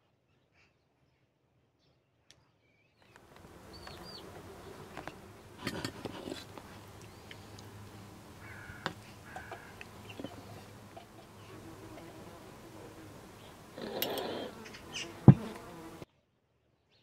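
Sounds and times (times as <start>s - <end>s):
bird chirps: 3.0s - 5.3s, 6.7s - 11.7s, 13.1s - 15.2s
steady low background noise: 3.1s - 16.0s
light clicks and knocks: 3.2s - 15.8s.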